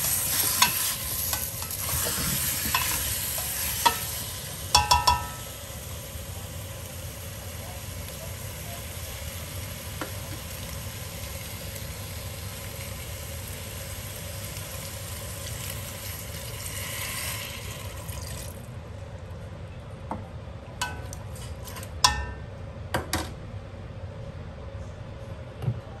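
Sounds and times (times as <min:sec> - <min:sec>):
food sizzling in a pot: 0:00.0 - 0:18.6
liquid pouring with splash: 0:16.2 - 0:18.6.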